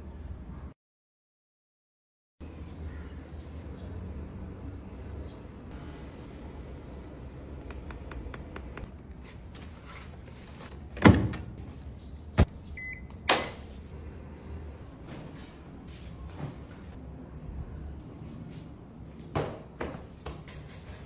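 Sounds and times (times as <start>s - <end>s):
washing machine electronic beep: 12.8s - 13.1s.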